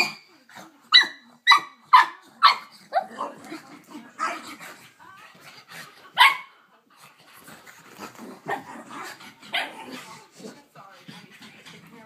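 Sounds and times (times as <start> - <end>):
puppy barking: 0.9 - 3.2, 6.2 - 6.5.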